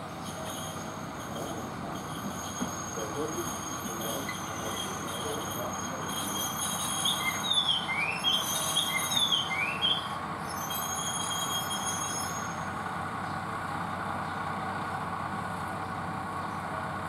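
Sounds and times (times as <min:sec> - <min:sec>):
diesel railcar engine: 0:00.0 - 0:17.0
squeals from running gear: 0:00.2 - 0:12.7.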